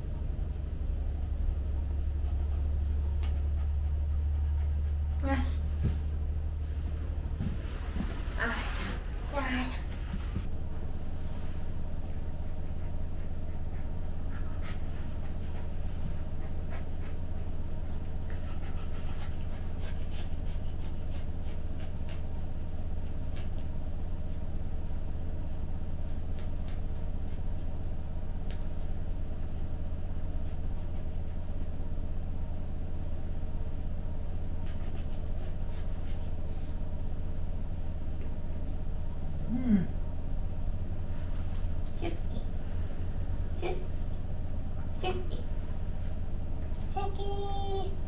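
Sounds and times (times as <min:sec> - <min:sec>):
puppy panting: 0:00.0 - 0:05.6, 0:12.2 - 0:23.8
low hum: 0:00.0 - 0:48.0.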